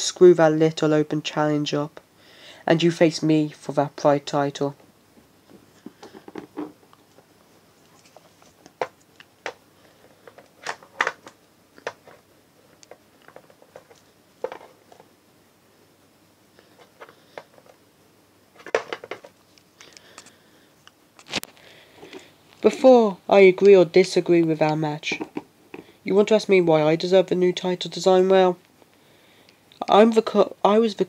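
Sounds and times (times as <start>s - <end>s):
plastic figures clicking and rustling: 7.9s - 15.1s, 18.6s - 20.4s.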